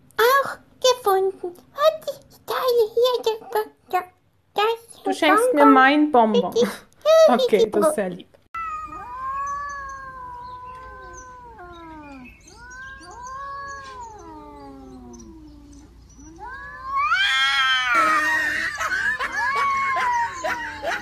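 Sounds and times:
harsh screechy cat yowl: 8.6s - 15.4s, 16.3s - 21.0s
cats caterwauling: 8.6s - 21.0s.

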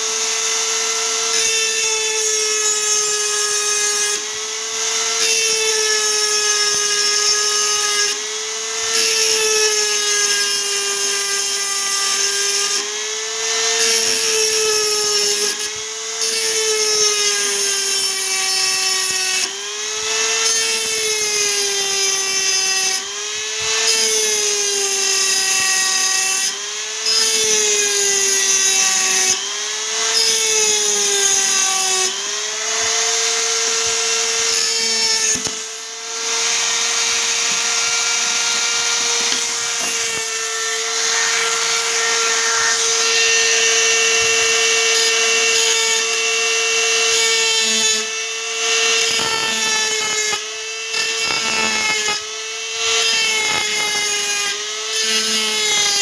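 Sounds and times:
rotary tool whining: 0.0s - 56.0s
grinding bit on steel: 32.8s - 46.3s, 48.6s - 56.0s.

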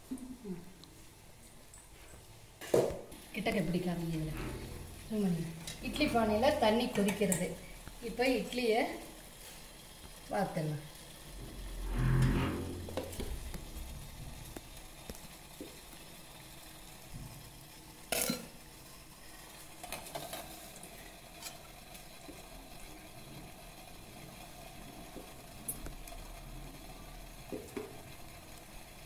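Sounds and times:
water boiling in a pot: 0.0s - 29.0s.

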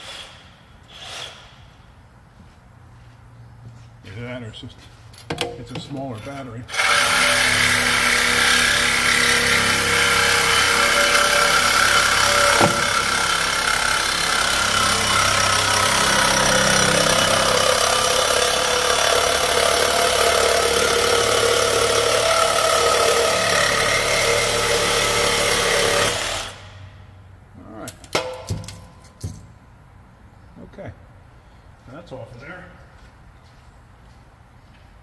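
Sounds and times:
reciprocating saw cutting metal pipe: 6.7s - 26.7s.

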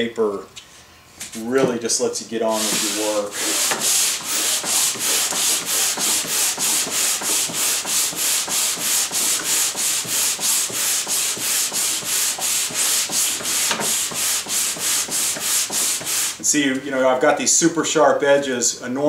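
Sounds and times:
hand sanding wood: 1.9s - 16.6s.

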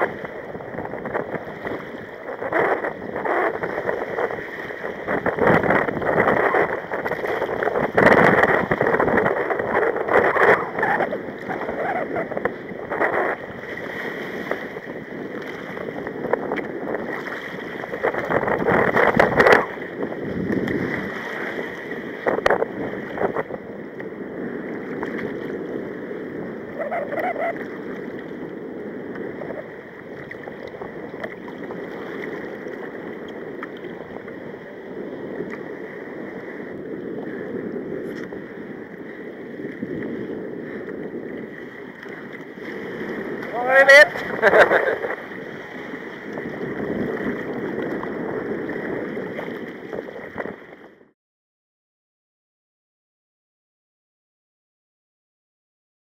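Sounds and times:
sea water splashing against kayak hull: 0.0s - 51.0s
wind buffeting microphone: 0.0s - 51.1s.

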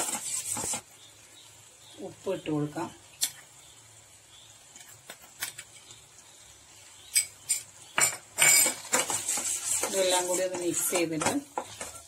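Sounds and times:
metal spoon scraping steel pot: 7.2s - 12.0s.

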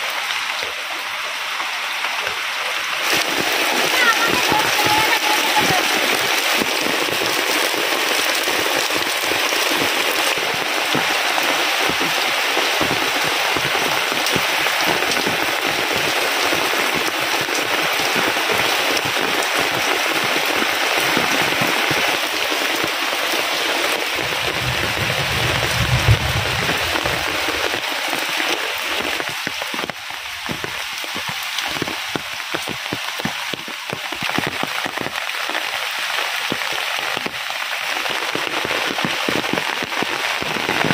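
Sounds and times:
heavy rain on foliage and roof: 0.0s - 40.9s
low rumble: 24.1s - 27.8s.

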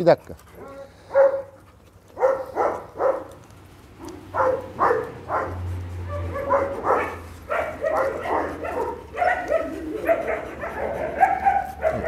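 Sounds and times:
dog whining yips: 7.6s - 12.0s.

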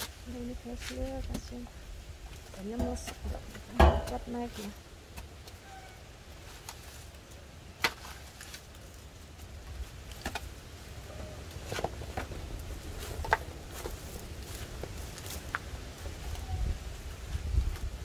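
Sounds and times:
low steady rumble: 0.2s - 5.2s
tool knocking and scraping in mud: 2.6s - 4.5s.

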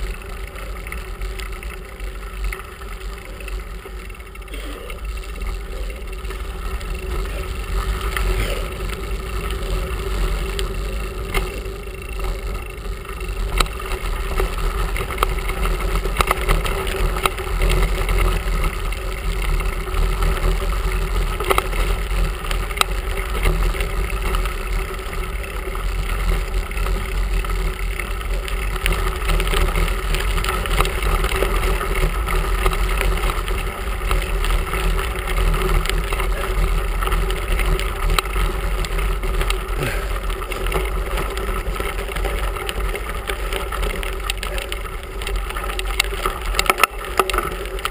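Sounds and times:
bike rattles and clicks: 0.0s - 47.9s
tyres on gravel: 0.0s - 47.9s.

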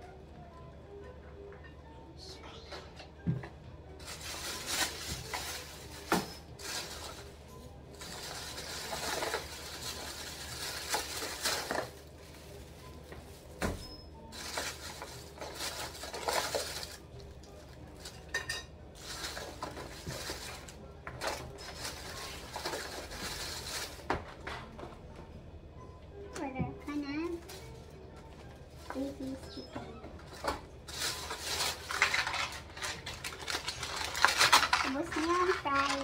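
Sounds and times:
plastic bags rustling: 3.9s - 24.3s, 27.3s - 28.0s, 30.2s - 36.0s.

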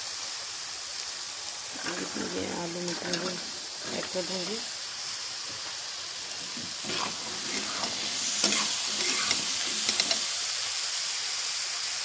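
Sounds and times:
food sizzling in hot oil: 0.0s - 12.0s
metal spatula scraping a pan: 6.4s - 10.3s.

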